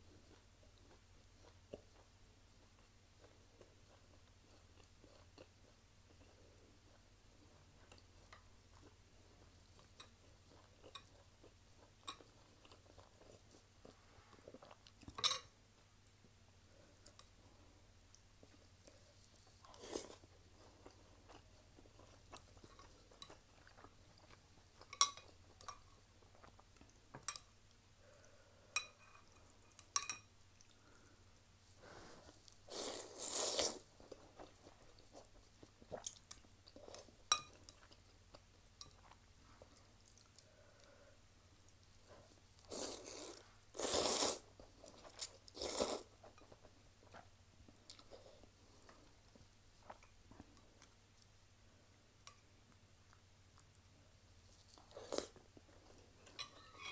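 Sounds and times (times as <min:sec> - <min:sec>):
soft chewing: 0:00.0 - 0:56.9
noodles slurped: 0:42.7 - 0:44.5.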